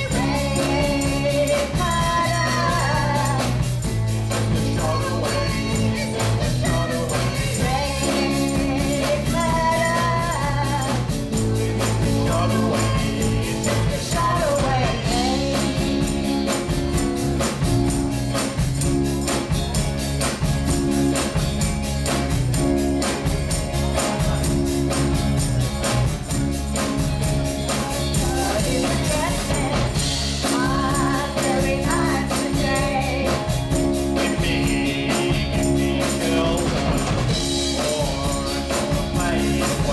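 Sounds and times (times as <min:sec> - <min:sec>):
woman singing: 0:00.0 - 0:03.8, 0:04.4 - 0:17.0, 0:27.7 - 0:39.9
rock band playing: 0:00.0 - 0:39.9.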